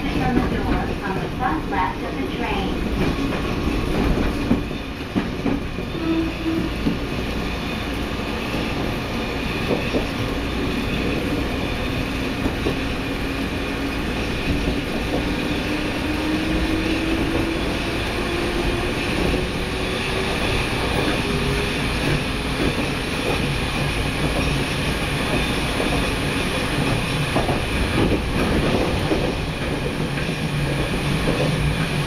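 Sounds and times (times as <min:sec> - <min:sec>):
train running: 0:00.0 - 0:32.0.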